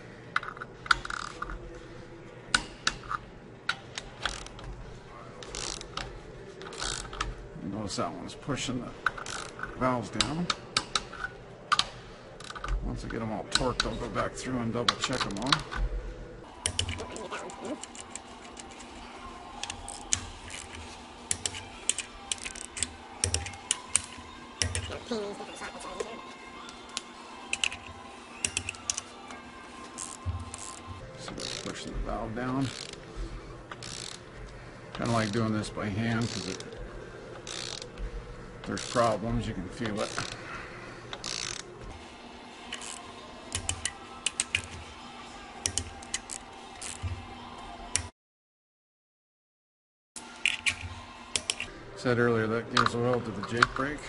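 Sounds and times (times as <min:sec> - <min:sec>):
torque wrench ratcheting and clicking: 0:00.4 - 0:01.4, 0:05.4 - 0:07.3, 0:09.0 - 0:12.8, 0:19.6 - 0:24.9, 0:30.0 - 0:31.8, 0:32.6 - 0:33.0, 0:33.7 - 0:34.2, 0:36.2 - 0:36.8, 0:37.4 - 0:38.0, 0:38.7 - 0:39.2, 0:39.8 - 0:40.4, 0:41.1 - 0:41.6, 0:42.7 - 0:44.8.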